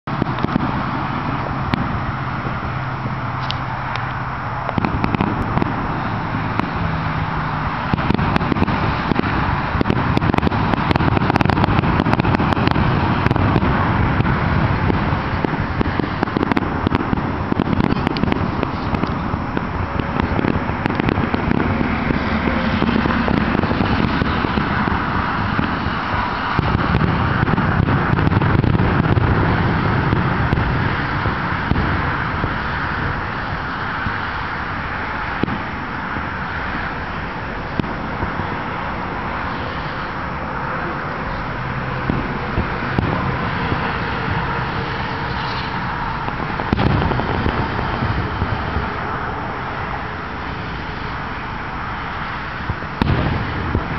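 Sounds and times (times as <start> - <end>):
fireworks booms and crackles: 0.0 - 53.9.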